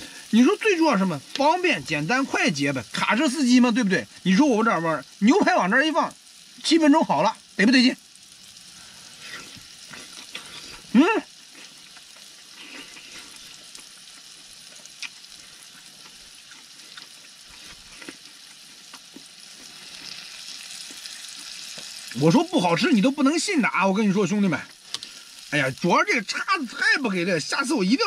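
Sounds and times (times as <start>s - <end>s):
steak sizzling on a griddle: 0.0s - 28.0s
person exclaiming: 4.3s - 6.1s, 10.9s - 11.4s, 26.1s - 28.0s.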